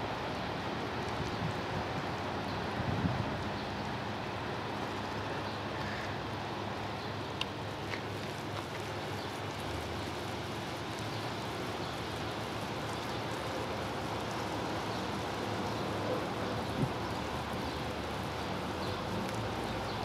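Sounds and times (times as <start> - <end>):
faint ticks: 7.3 - 15.8, 16.6 - 20.0.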